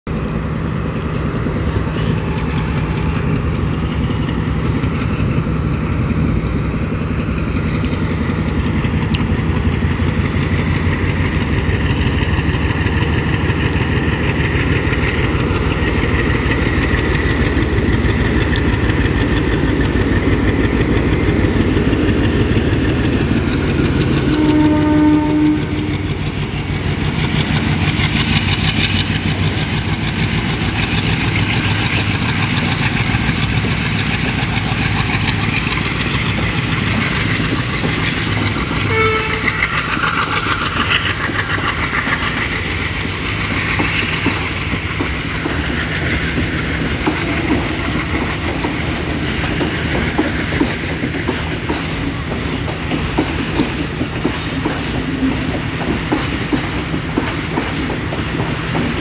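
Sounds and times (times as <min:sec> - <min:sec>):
diesel locomotive engine running: 0:00.1 - 0:59.0
short train horn note: 0:24.2 - 0:26.1, 0:38.8 - 0:39.8.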